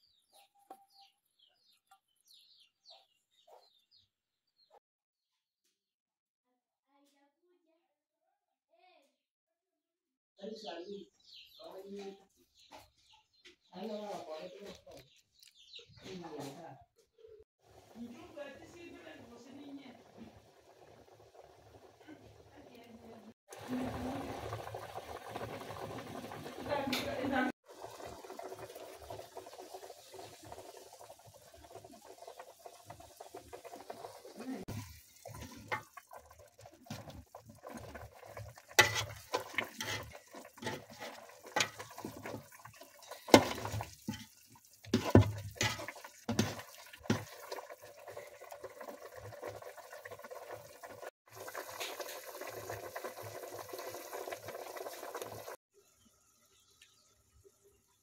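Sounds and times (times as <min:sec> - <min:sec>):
stew bubbling in pot: 0:17.6 - 0:55.6
pot of water hissing: 0:23.5 - 0:55.6
metal spoon clinking pot: 0:38.8 - 0:42.4, 0:45.0 - 0:47.2.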